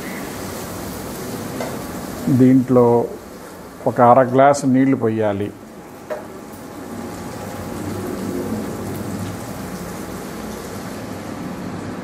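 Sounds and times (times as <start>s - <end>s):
food sizzling in hot oil: 0.0s - 12.0s
steady low hum: 0.0s - 12.0s
water poured into a pan: 6.5s - 11.5s.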